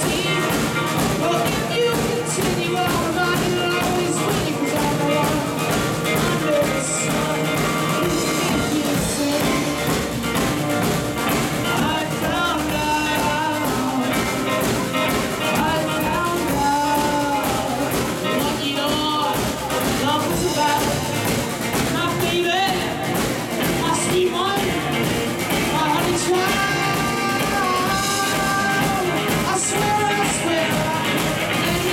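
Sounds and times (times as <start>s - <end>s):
drum kit: 0.0s - 31.9s
electric guitars: 0.0s - 31.9s
person singing: 0.0s - 31.9s.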